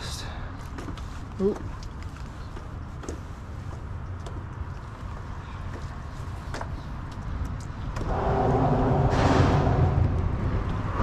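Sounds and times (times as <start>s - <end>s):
low rumble of bridge traffic: 0.0s - 11.0s
passing vehicle tyre noise: 7.9s - 11.0s.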